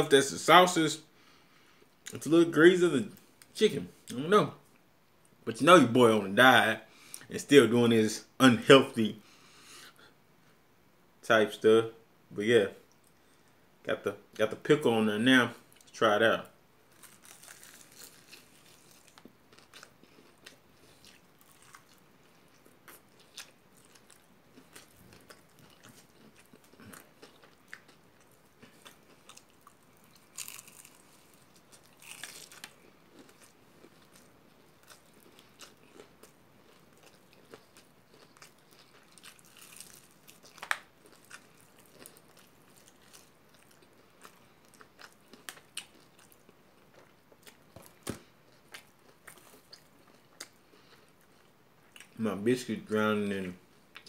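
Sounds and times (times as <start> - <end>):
person chewing crunchy chicken: 16.9 - 52.2.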